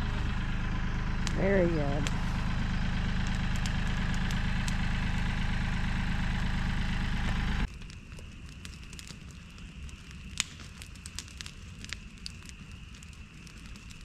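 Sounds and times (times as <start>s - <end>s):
engine idling: 0.0s - 7.7s.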